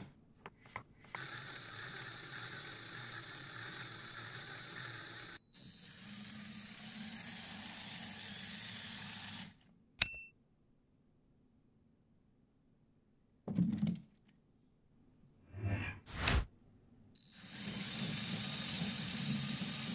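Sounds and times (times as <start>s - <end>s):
toy electric motor whirring: 1.1s - 9.6s, 17.3s - 19.9s
sharp click with ring: 10.0s - 10.3s.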